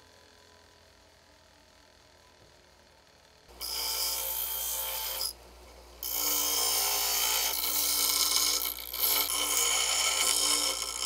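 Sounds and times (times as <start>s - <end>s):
bench grinder grinding metal: 3.5s - 5.4s, 6.0s - 11.0s.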